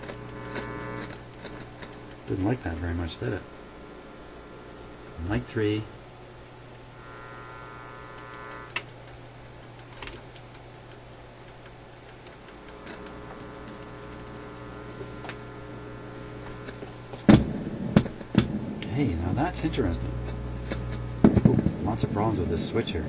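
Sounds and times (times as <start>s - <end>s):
amplifier mains hum and buzz: 0.0s - 23.0s
selector switch clicks: 8.0s - 15.5s.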